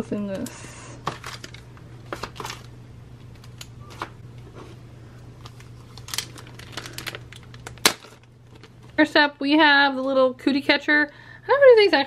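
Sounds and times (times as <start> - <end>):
plastic bag crinkling: 1.1 - 2.7, 5.4 - 9.0.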